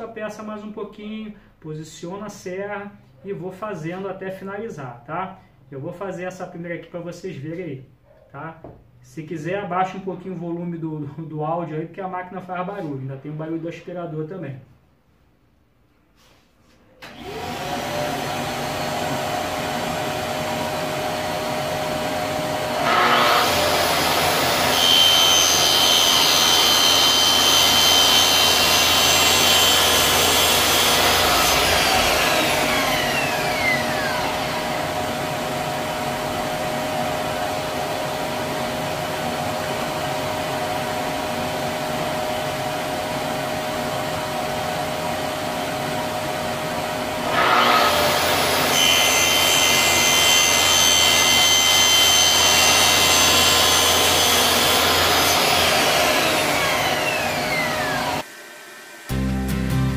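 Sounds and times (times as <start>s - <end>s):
track saw cutting wood: 17.0s - 59.1s
shop vacuum running: 17.0s - 59.4s.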